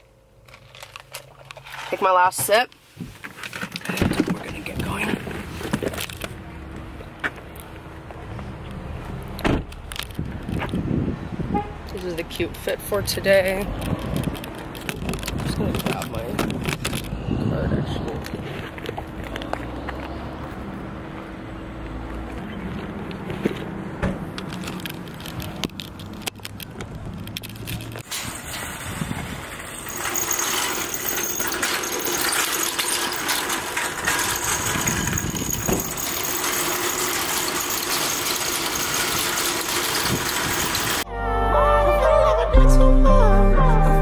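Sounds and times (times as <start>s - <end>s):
clicks and clatters: 3.2s - 6.4s, 9.2s - 10.8s, 13.7s - 17.1s, 24.3s - 41.0s
car engine humming: 3.9s - 28.4s
shopping cart rattling on asphalt: 12.0s - 17.1s, 24.4s - 41.0s.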